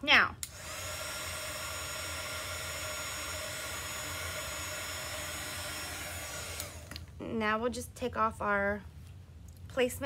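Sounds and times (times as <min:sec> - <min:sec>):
heat tool blowing air: 0:00.4 - 0:07.0.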